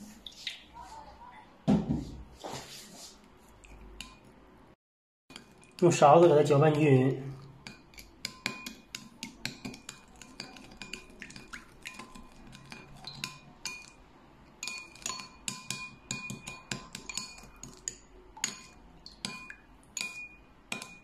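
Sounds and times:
metal spoon clinking in glass bowl: 7.4 - 14.0, 14.6 - 21.0.

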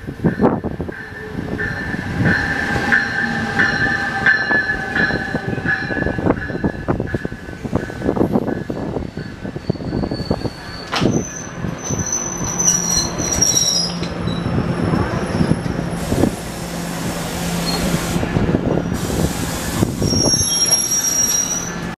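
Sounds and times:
wheel squeals: 9.0 - 15.8, 17.6 - 18.0, 20.0 - 22.0.

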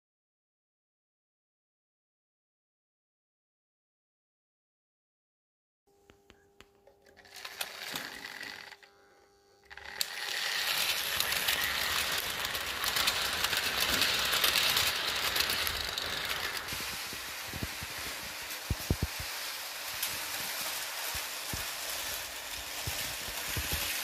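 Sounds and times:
model train clatter and whirr: 7.0 - 8.9, 9.7 - 24.0.

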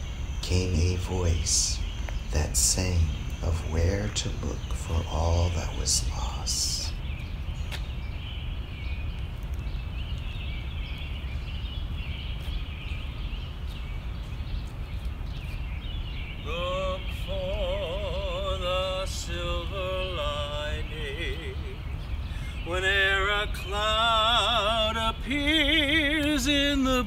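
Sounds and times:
faint high chirping: 0.0 - 27.0
low city rumble: 0.0 - 27.0
person singing unaccompanied: 0.4 - 7.0, 16.4 - 27.0.

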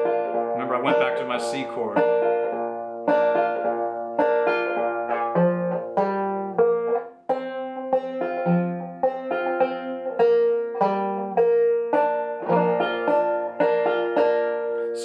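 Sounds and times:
banjo plucked notes: 0.0 - 15.0.

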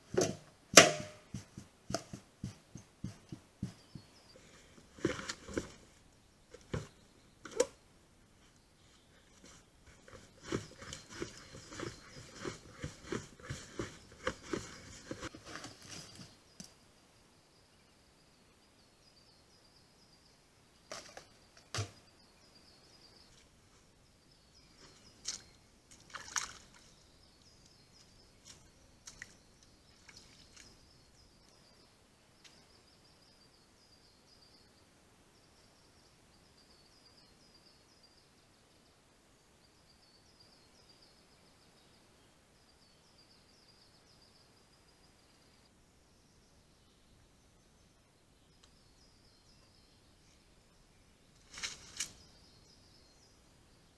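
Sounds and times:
metal can knocking and clattering: 0.2 - 1.3.

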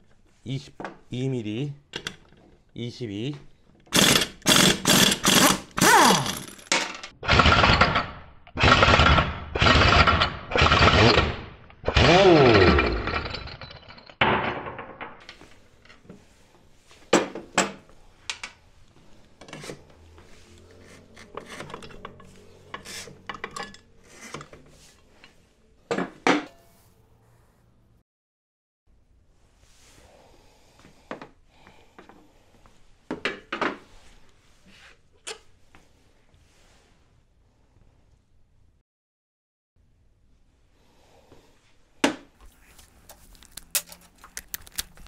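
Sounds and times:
pneumatic impact wrench hammering: 3.9 - 13.3.

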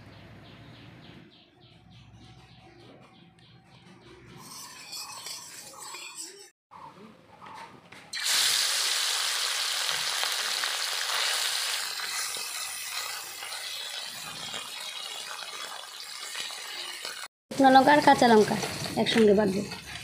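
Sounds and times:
fish sizzling in hot oil: 8.2 - 19.2.

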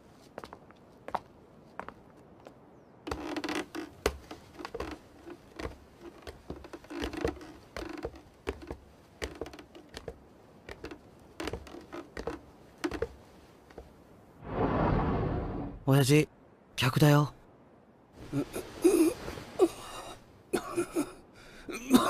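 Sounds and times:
footsteps on wooden floor: 3.1 - 13.9.

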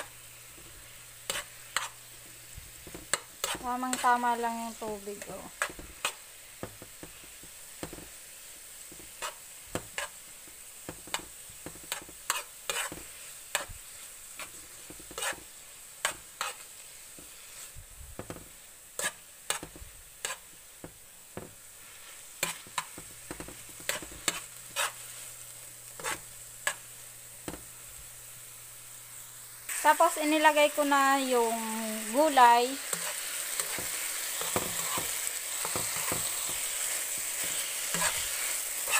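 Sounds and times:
noodles sizzling in a pan: 0.0 - 38.9
utensil tapping and scraping pan: 0.5 - 2.0, 2.8 - 4.2, 8.9 - 10.2, 10.8 - 13.8, 14.4 - 17.4, 18.2 - 25.1, 26.0 - 26.8, 27.4 - 27.7, 32.9 - 38.9.

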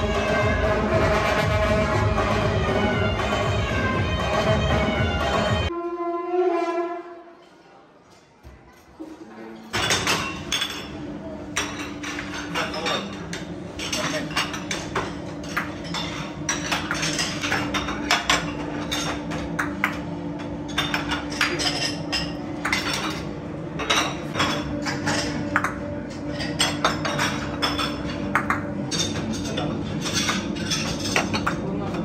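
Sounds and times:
porcelain bowls clinking: 9.6 - 31.9.

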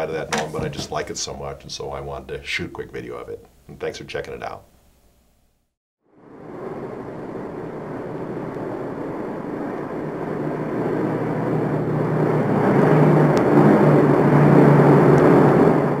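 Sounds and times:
engine-like rumble: 0.0 - 2.1, 6.2 - 16.0.

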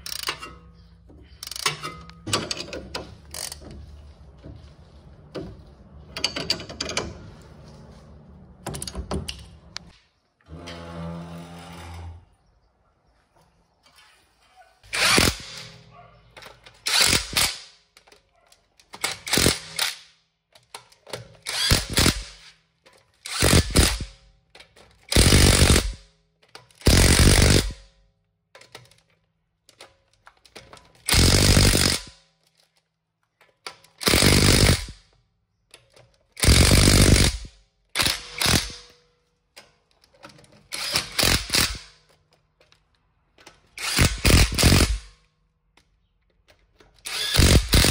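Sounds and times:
impact wrench hammering bolts: 0.0 - 3.8, 5.4 - 7.2, 8.6 - 9.9, 14.9 - 32.4, 33.5 - 35.1, 35.7 - 47.9.

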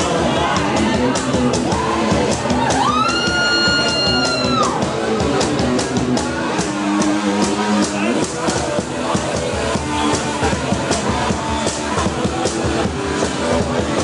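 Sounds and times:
acoustic rock band playing: 0.0 - 14.0.

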